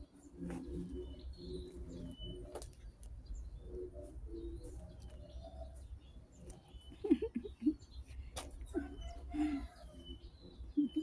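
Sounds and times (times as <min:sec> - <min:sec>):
bird cooing: 0:08.7 - 0:11.0.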